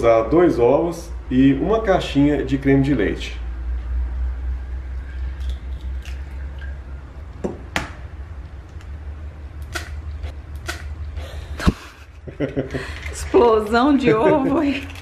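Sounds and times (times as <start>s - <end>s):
steady low hum: 0.0s - 14.9s
eggshells cracking: 14.5s - 15.0s.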